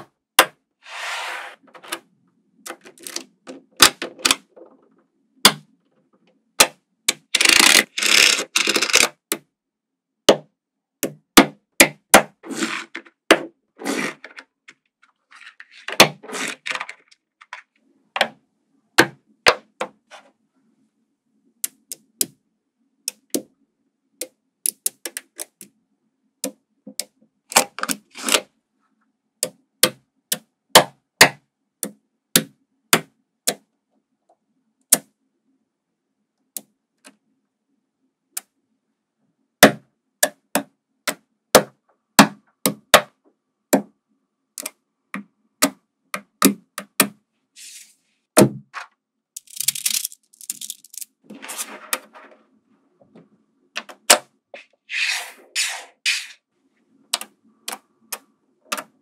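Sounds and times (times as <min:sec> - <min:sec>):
magnetic balls clicking: 0:49.4 - 0:51.1.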